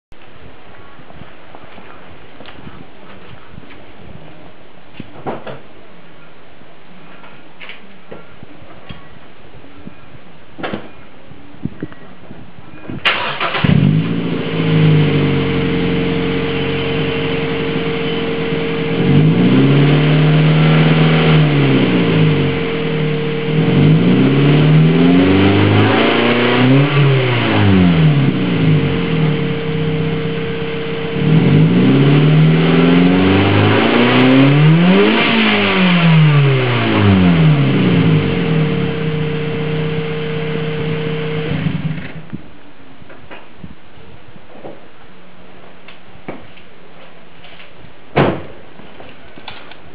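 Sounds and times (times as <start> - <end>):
car engine starting and revving: 13.0 - 42.3.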